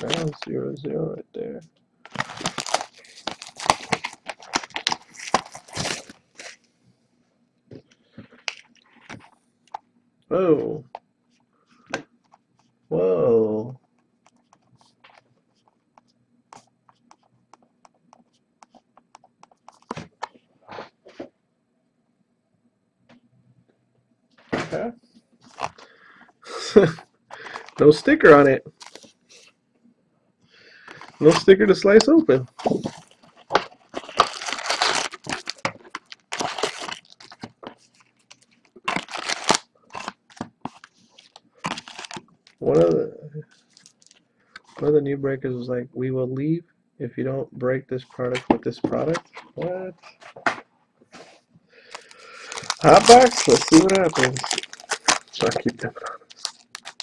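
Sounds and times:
card packs crinkling: 0.0s - 0.5s, 2.1s - 6.7s, 25.4s - 29.1s, 30.8s - 42.8s, 43.5s - 44.9s, 51.2s - 57.0s
faint steady hum: 0.0s - 57.0s
cardboard box rustling: 2.1s - 6.6s, 32.6s - 38.0s, 38.9s - 42.2s.

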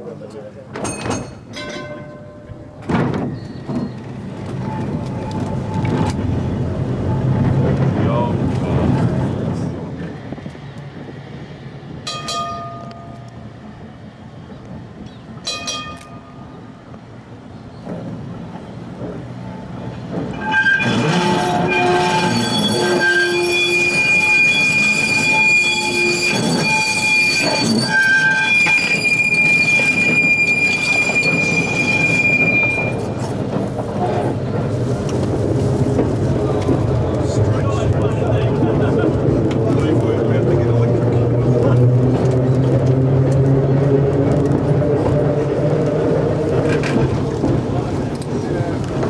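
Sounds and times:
electric tram running on rails: 0.0s - 49.0s
high wheel squeal: 1.8s - 6.1s, 20.3s - 33.4s.

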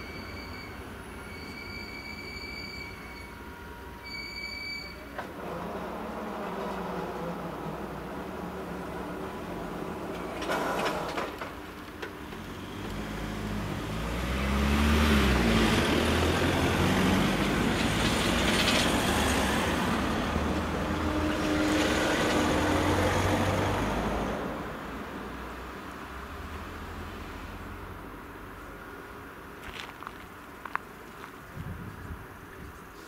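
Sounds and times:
cars driving past: 5.2s - 28.4s.

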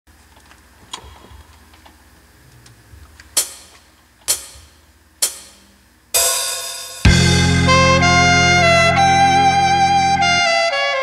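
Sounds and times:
sharp count-in ticks: 3.4s - 5.7s
ringing hit: 3.4s - 7.4s.

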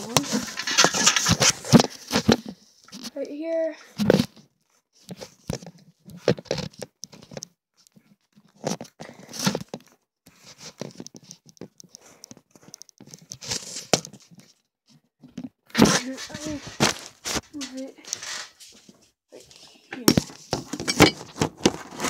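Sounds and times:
phone being handled: 20.0s - 22.0s.

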